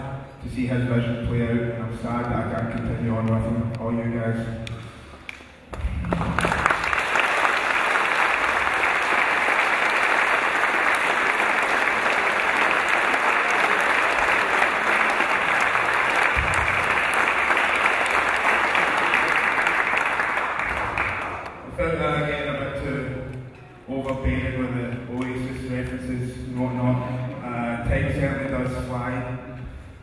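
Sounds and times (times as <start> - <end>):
crowd applauding: 5.3 - 21.7.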